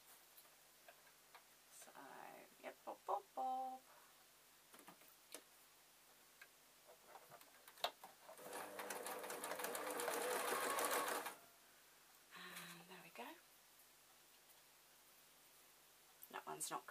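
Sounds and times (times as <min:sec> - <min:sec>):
sewing machine stitching: 0:08.2 - 0:11.4.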